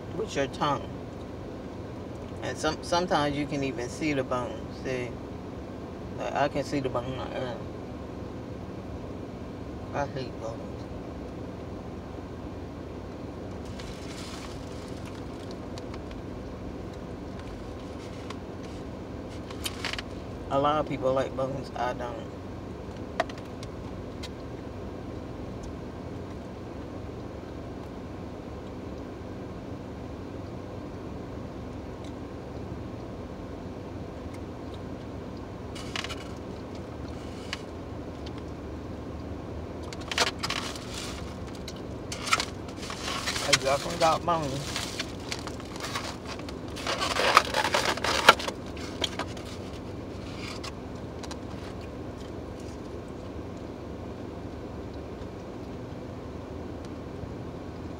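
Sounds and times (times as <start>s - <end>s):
low steady hum: 0.0s - 57.9s
food packaging rustling: 13.6s - 16.2s, 17.4s - 20.2s, 35.8s - 36.4s, 39.9s - 52.9s
car engine idling: 33.1s - 53.6s
chewing and food handling clicks: 34.2s - 38.6s.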